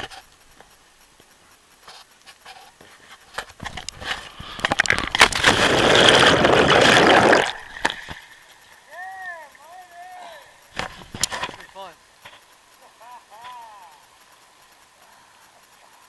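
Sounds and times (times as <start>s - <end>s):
splashing churning river water: 4.0s - 9.6s.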